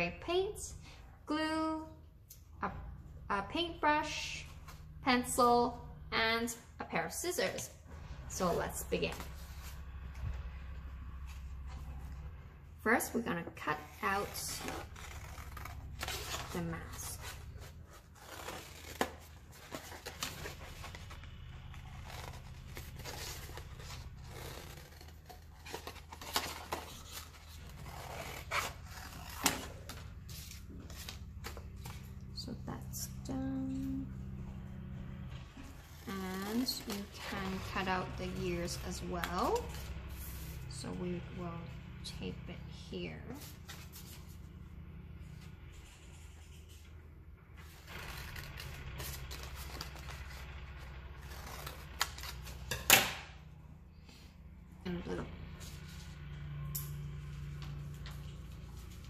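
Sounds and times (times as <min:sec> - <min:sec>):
paper rustling and scraping: 0:13.8 - 0:32.2.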